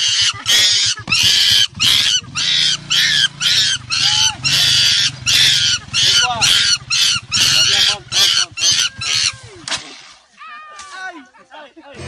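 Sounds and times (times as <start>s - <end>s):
young monkey screaming: 0.0s - 9.5s.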